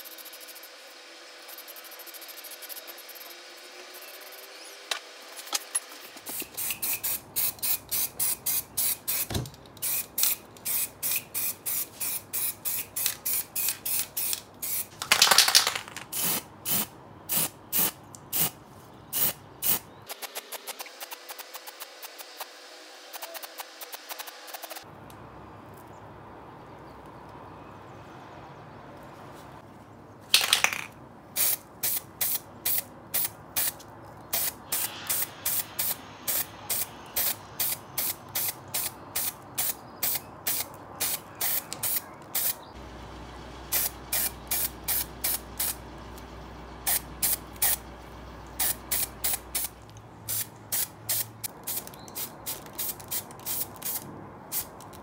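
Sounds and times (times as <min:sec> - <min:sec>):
spray paint can bursts: 0:05.4 - 0:18.6, 0:19.2 - 0:22.5, 0:30.3 - 0:42.6, 0:43.7 - 0:45.8, 0:46.9 - 0:47.8, 0:48.6 - 0:49.7, 0:50.3 - 0:55.0.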